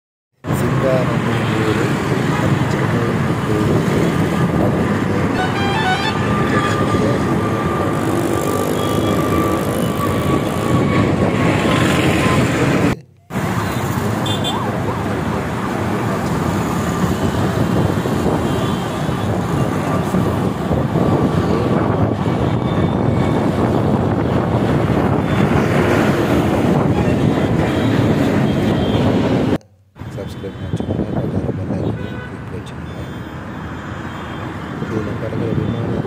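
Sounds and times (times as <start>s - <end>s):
road traffic roar: 0.3s - 36.0s
jet airliner climbing overhead: 3.2s - 13.0s.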